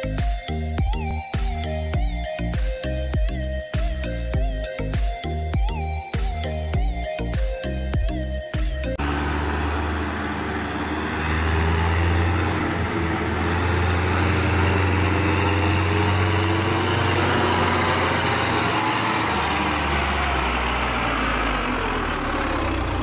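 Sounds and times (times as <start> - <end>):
tractor diesel engine running: 8.9 - 23.0.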